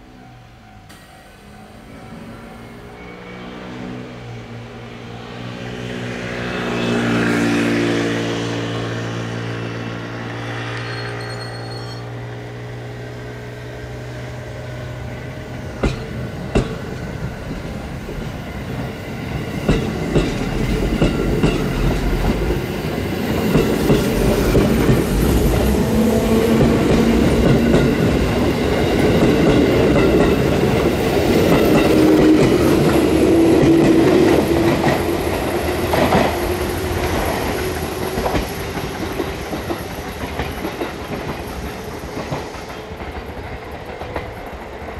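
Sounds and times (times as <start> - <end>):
train rolling noise: 0.0 - 44.9
wheels clicking over rail joints: 26.6 - 44.9.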